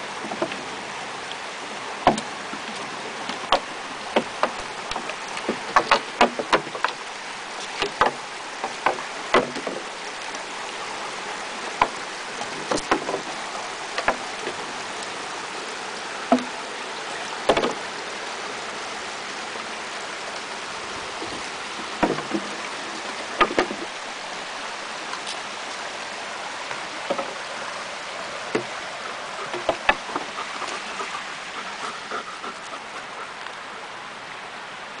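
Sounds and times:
stick knocking on wooden bridge: 2.0s - 7.0s, 7.7s - 9.9s, 11.8s - 13.4s, 14.0s - 14.6s, 16.3s - 16.6s, 17.4s - 17.8s, 21.2s - 22.7s, 23.4s - 23.9s, 27.0s - 27.4s, 28.5s - 28.7s, 29.5s - 30.4s.

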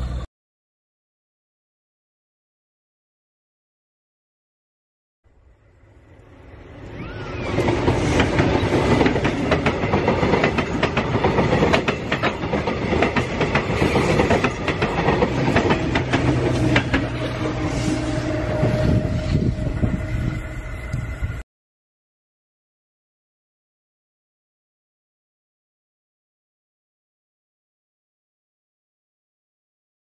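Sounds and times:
train running noise: 0.0s - 0.3s, 5.3s - 21.4s
wheels clacking over rail joints: 7.5s - 17.8s.

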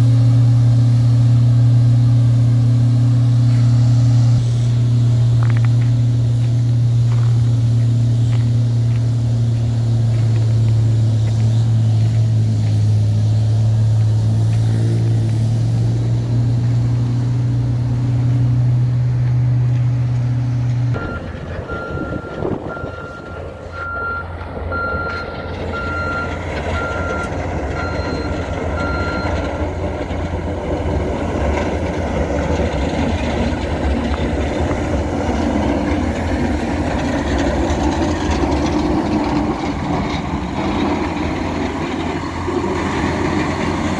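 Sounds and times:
diesel truck engine: 0.0s - 43.9s
low engine drone: 0.0s - 43.9s
plow blade scraping snow: 0.0s - 43.9s
traffic noise: 0.0s - 43.9s
reversing alarm beeping: 20.9s - 29.6s.

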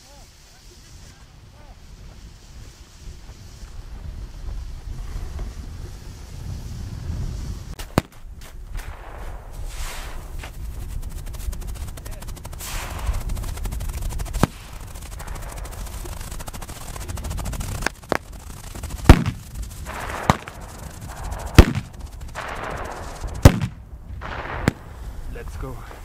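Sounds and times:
fireworks crackling: 0.0s - 26.0s
firework bangs: 6.3s - 26.0s.

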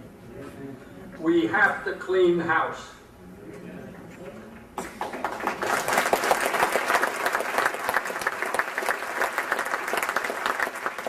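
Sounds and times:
audience applauding: 4.8s - 11.0s.

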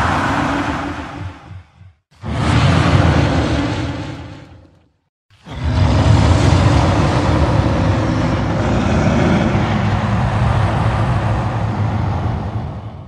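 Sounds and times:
bear roaring: 5.4s - 10.2s.

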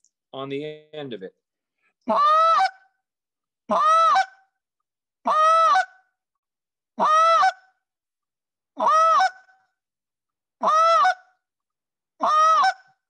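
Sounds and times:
goose call moaning and clucking: 2.1s - 2.8s, 5.3s - 6.0s, 7.0s - 7.6s, 8.8s - 9.5s, 10.6s - 11.3s, 12.2s - 12.9s.

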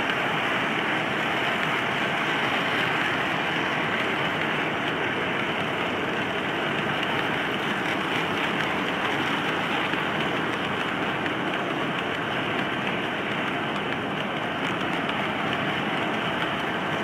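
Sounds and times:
model train wheels on track: 0.0s - 17.0s.

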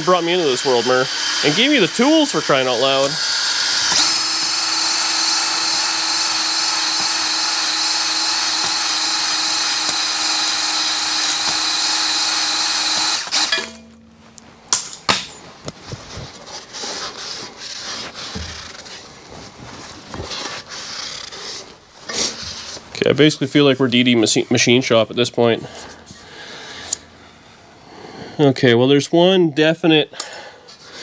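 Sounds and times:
drill whining: 0.0s - 13.9s
tool clicks and knocks: 3.8s - 4.2s, 5.7s - 15.8s.

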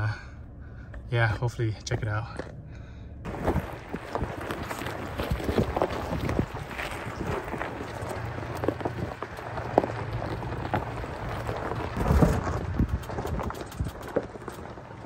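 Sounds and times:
gravel crunching under tyres: 0.0s - 15.0s
low vehicle rumble: 0.0s - 15.0s
loose stones clicking and popping: 3.3s - 15.0s.

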